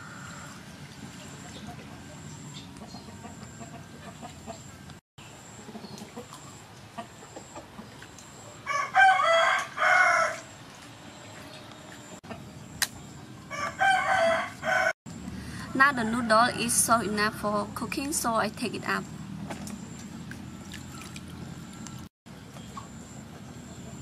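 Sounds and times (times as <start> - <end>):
rooster crowing: 8.6 - 10.5, 13.5 - 15.0.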